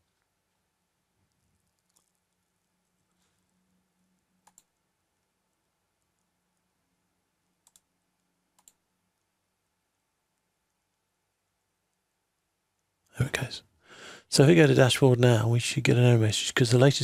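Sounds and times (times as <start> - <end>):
computer mouse clicks: 1.3 - 2.4, 4.4 - 4.8, 7.6 - 7.9, 8.5 - 8.8.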